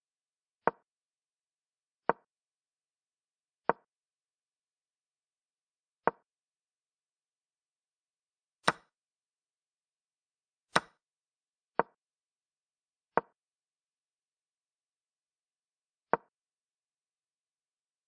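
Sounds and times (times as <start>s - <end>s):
chess app wooden clicks: 0.6s - 0.8s, 2.1s - 2.3s, 3.6s - 3.9s, 8.6s - 8.9s, 10.7s - 11.0s, 11.8s - 12.0s, 13.1s - 13.4s, 16.1s - 16.3s.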